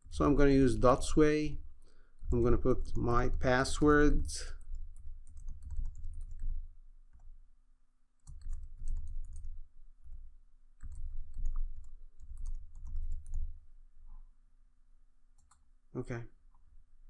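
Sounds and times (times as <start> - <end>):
typing on computer keyboard: 4.5 - 7.3, 8.2 - 10.2, 10.8 - 13.6.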